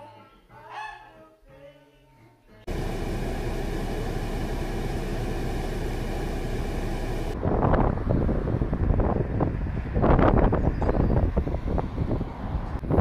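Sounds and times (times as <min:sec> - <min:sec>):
car heater blower hissing: 0:02.7 - 0:07.6
wind buffeting microphone: 0:06.9 - 0:13.0.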